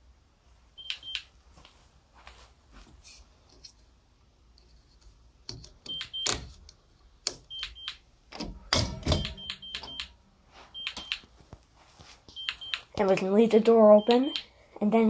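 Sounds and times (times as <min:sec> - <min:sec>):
alarm panel paired beeps: 0:00.8 - 0:01.2, 0:05.9 - 0:06.4, 0:07.5 - 0:08.0, 0:08.6 - 0:11.2, 0:12.3 - 0:13.0, 0:13.9 - 0:14.5.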